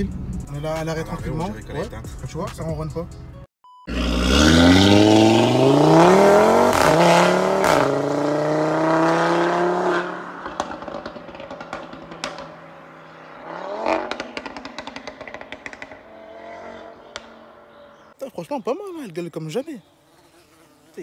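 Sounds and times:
car engine accelerating hard: 0:03.9 - 0:18.1.

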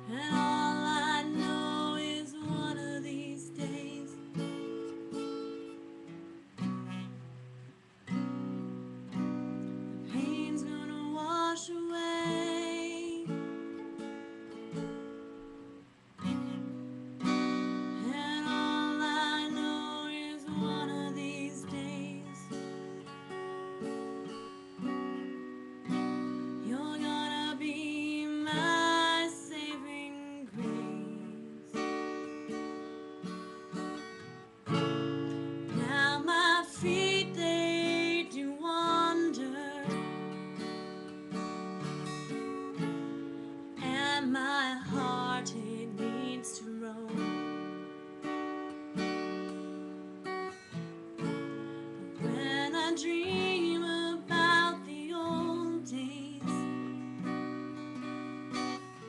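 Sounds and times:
person singing: 0:00.0 - 0:04.5, 0:10.1 - 0:13.5, 0:17.9 - 0:22.6, 0:26.6 - 0:32.0, 0:35.7 - 0:40.2, 0:43.8 - 0:47.5, 0:52.2 - 0:56.8
acoustic guitar strumming: 0:00.0 - 0:59.0.

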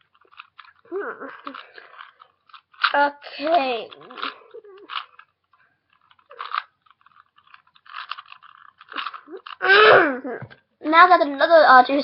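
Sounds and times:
puzzle cube clicking and rattling: 0:00.0 - 0:09.8.

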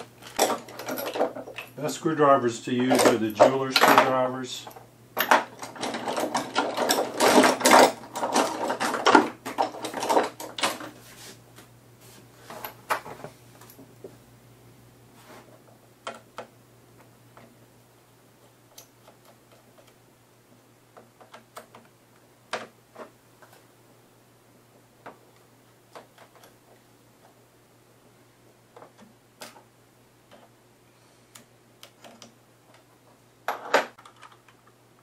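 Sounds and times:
plastic rubbing and rattling: 0:05.4 - 0:11.3.

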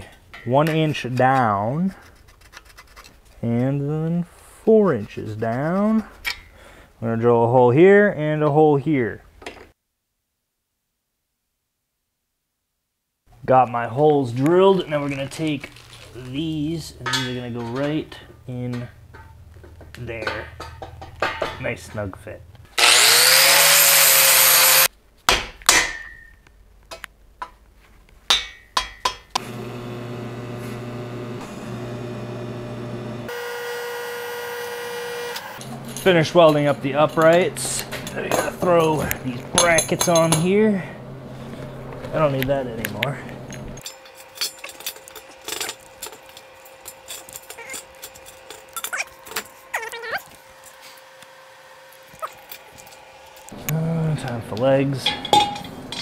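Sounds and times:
metal clanks and taps: 0:17.0 - 0:21.7, 0:28.3 - 0:29.4, 0:37.2 - 0:40.6, 0:55.0 - 0:56.0
angle grinder grinding steel: 0:22.8 - 0:24.9, 0:29.4 - 0:40.2, 0:43.5 - 0:51.1
welding arc buzzing: 0:22.8 - 0:24.9, 0:29.4 - 0:36.1.

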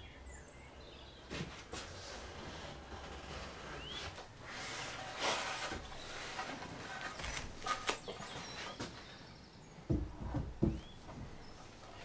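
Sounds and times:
bird chirping: 0:00.0 - 0:01.4, 0:07.2 - 0:12.0
rustle: 0:01.3 - 0:09.2.

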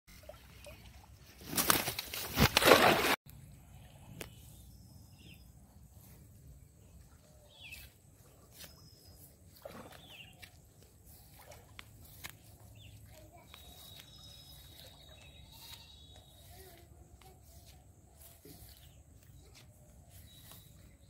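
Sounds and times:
faint bird chirps: 0:03.8 - 0:21.0
grass rustling: 0:07.8 - 0:20.9.

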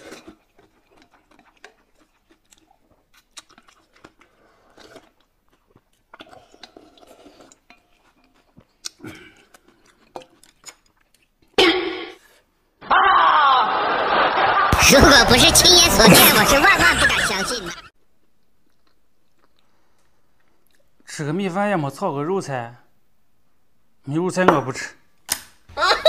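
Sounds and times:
chewing and slurping: 0:00.0 - 0:11.6, 0:18.4 - 0:21.0.

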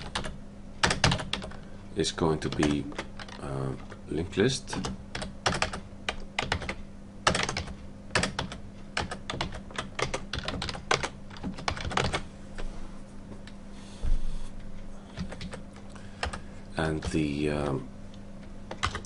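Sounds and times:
keyboard typing: 0:00.0 - 0:01.6, 0:02.4 - 0:04.0, 0:04.7 - 0:12.2, 0:15.1 - 0:17.3, 0:18.7 - 0:19.0.

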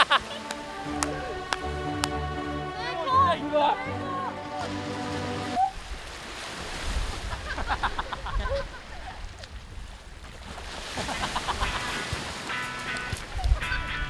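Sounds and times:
small waves washing onto shore: 0:00.0 - 0:13.7
wind gusts on microphone: 0:05.6 - 0:10.8, 0:11.5 - 0:14.0.

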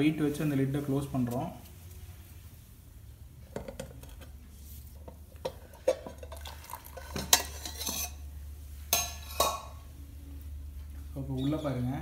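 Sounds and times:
steady low hum: 0:00.0 - 0:12.0
steel cookware clinking: 0:05.4 - 0:08.2, 0:08.9 - 0:09.8.

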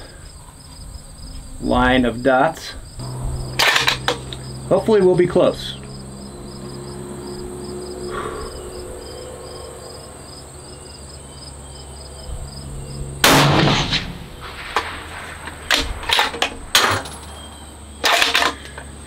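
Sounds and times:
rifle shot: 0:13.2 - 0:17.0.

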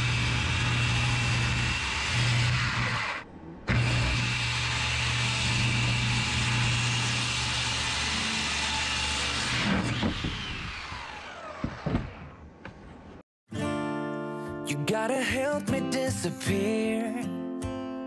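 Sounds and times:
power saw cutting: 0:00.0 - 0:12.5.

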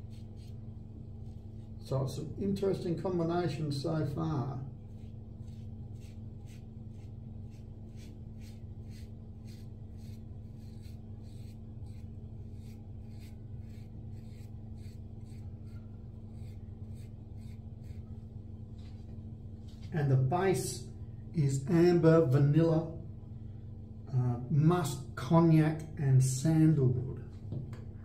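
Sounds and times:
razor scraping stubble: 0:00.0 - 0:01.9, 0:04.8 - 0:18.2
steady low hum: 0:00.0 - 0:28.0.

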